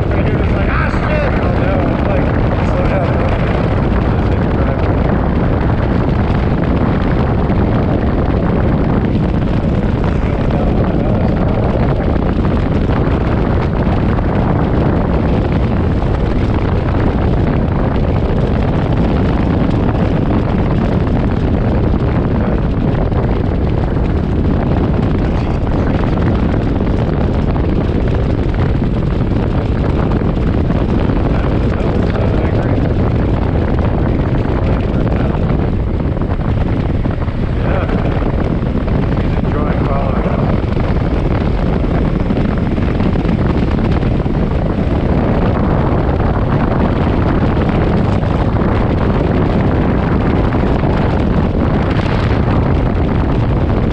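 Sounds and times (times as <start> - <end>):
motorcycle engine: 0.0 - 53.9
wind rushing over microphone: 0.0 - 53.9.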